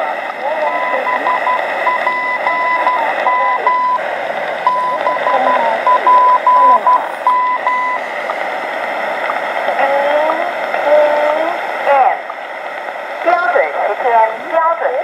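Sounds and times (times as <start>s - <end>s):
radio static: 0.0s - 15.0s
morse code tone: 0.6s - 8.1s.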